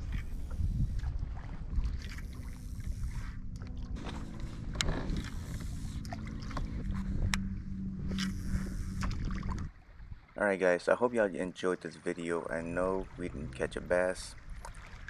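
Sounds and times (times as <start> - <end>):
faint steady hum: 0.0 - 9.8
wind rumble on microphone: 0.0 - 10.4, 12.8 - 15.0
water against hull: 0.0 - 15.0.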